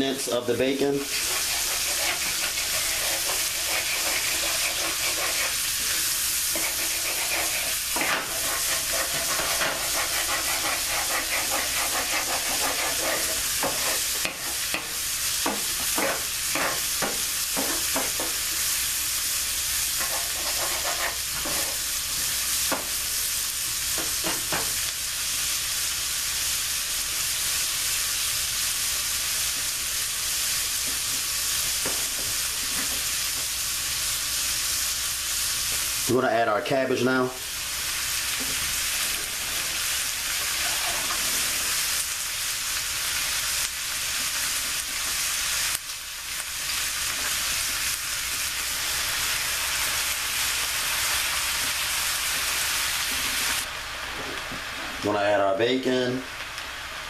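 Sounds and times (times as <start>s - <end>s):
vegetables sizzling in a frying pan: 0.0s - 57.0s
wooden spoon scraping a pan: 1.0s - 14.8s, 15.8s - 18.3s, 20.0s - 21.8s, 39.2s - 41.8s.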